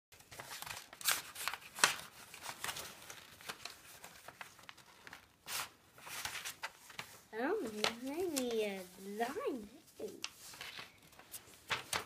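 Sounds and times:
paper envelope tearing: 0.2s - 7.1s.

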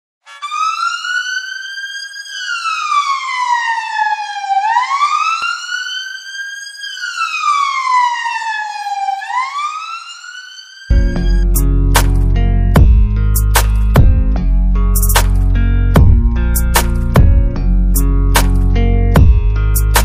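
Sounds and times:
siren wailing: 0.2s - 13.3s.

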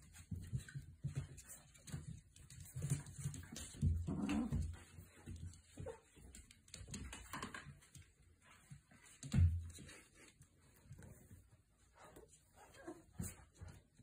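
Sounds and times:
puppy noises: 0.1s - 7.0s, 10.8s - 14.0s.

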